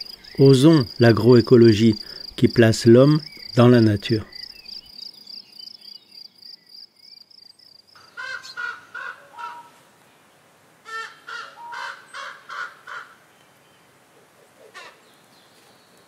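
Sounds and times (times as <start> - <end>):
crickets chirring: 0.0 - 8.1.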